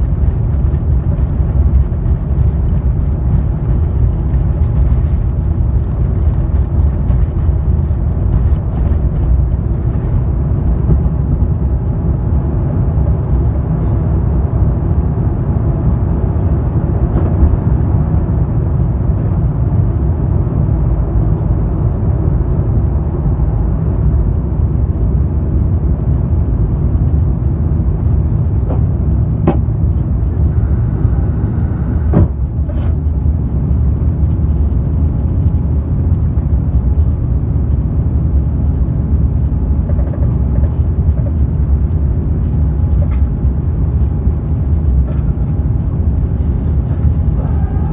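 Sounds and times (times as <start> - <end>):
jet engines rumbling: 0.0 - 47.9
knock: 29.4 - 29.6.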